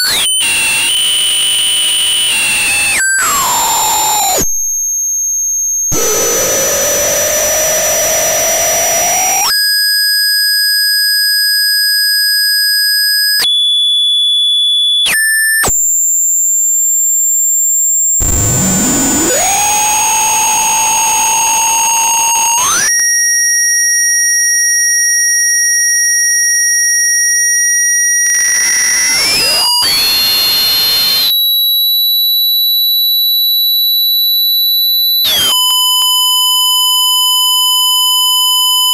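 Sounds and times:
harsh noisy buzz: 5.9 - 9.5, 18.2 - 22.9, 28.4 - 31.3
electronic tones sliding pitch: 18.2 - 22.9, 28.4 - 31.3.

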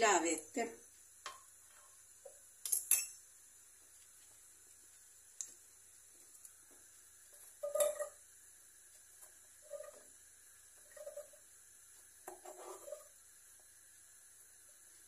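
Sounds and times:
vegetables scraped into pot: 12.3 - 13.2.

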